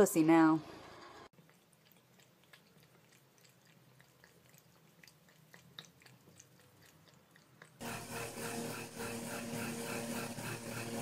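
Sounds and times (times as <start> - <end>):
cat lapping water: 1.3 - 7.8.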